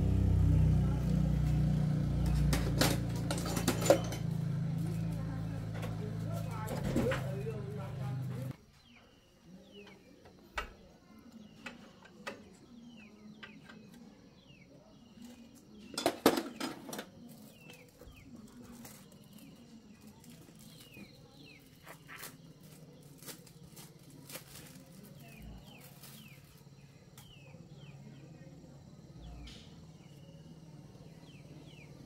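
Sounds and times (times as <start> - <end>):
birds chirping: 0.0 - 32.0
metal toolbox being rummaged: 2.6 - 4.4
metal tools clinking: 2.9 - 4.5.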